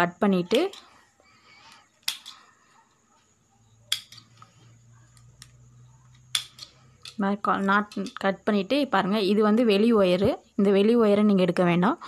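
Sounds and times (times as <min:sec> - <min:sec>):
wire rustling: 0:00.6 - 0:08.3.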